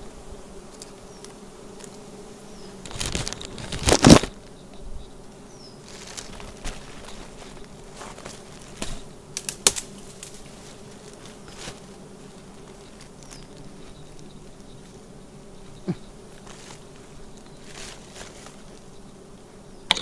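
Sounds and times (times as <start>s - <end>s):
honey bees buzzing: 0.0s - 20.0s
twigs and leaves crackling: 2.7s - 4.7s, 5.7s - 18.9s.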